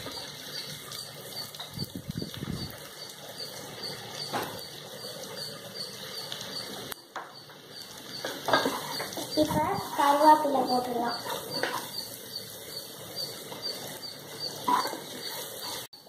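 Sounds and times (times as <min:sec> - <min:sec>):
spatula stirring and scraping pot: 0:03.3 - 0:16.0.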